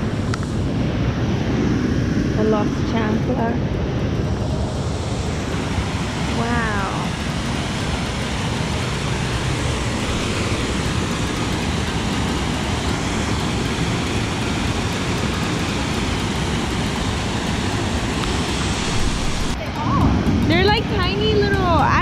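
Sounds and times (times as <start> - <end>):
water rushing over rocks: 5.4 - 22.0.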